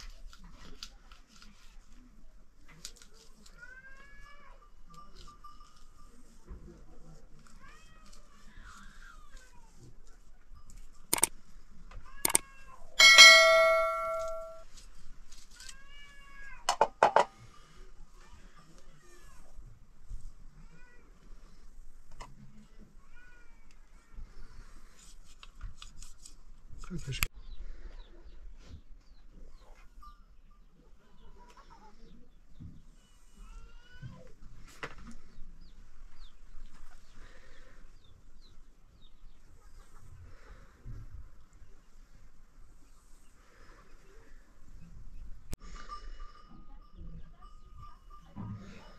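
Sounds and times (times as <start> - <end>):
sharp click: 11.1 - 11.3
steel bowl ringing: 13.0 - 14.6.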